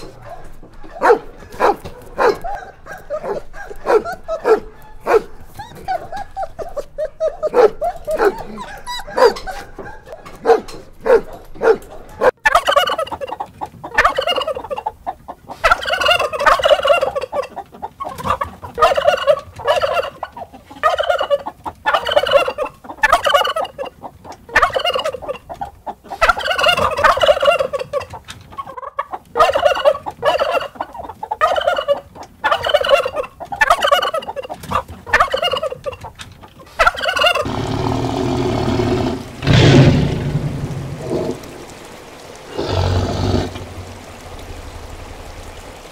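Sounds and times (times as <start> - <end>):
dogs barking: 0.0 - 14.9, 15.6 - 23.9, 28.7 - 39.8
turkey gobbling: 0.0 - 44.1.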